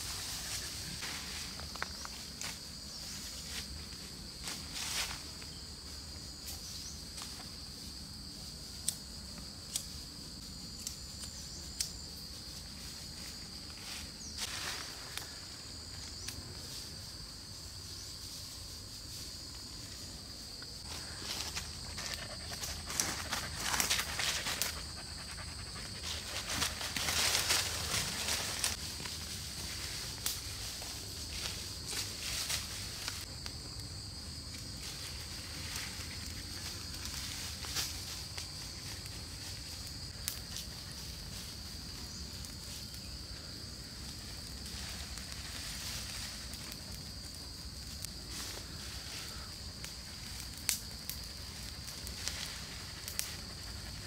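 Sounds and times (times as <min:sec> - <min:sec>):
footsteps in dry leaves: 0:00.0 - 0:05.5, 0:13.0 - 0:16.2, 0:20.8 - 0:33.3
rustling in dry leaves: 0:00.0 - 0:08.8, 0:11.3 - 0:54.0
high insect drone: 0:00.0 - 0:54.0.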